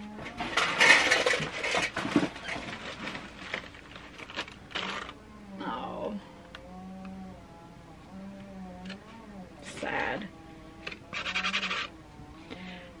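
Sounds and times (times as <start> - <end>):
cardboard and paper rustling: 0.2 - 5.2.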